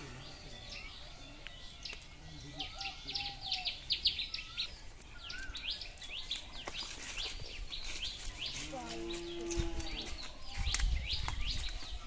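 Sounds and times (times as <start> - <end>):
soft whistled bird notes: 0.0 - 8.6
small birds chirping: 0.0 - 12.0.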